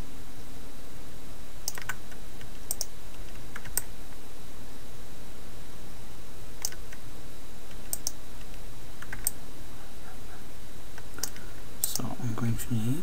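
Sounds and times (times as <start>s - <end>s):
steady low hum: 0.0s - 13.0s
computer keys clicking: 1.6s - 3.9s, 6.6s - 7.0s, 7.7s - 9.4s, 11.0s - 12.1s.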